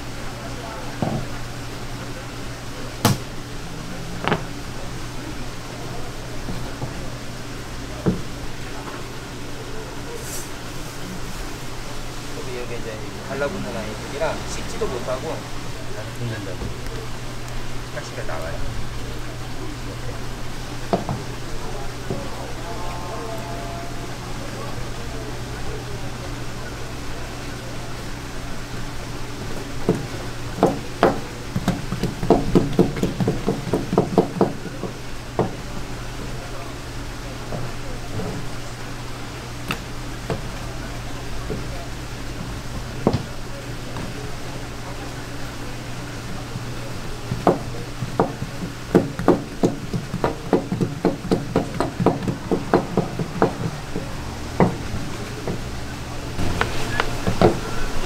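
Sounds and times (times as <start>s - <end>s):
knife chopping on cutting board: 3.0s - 3.3s.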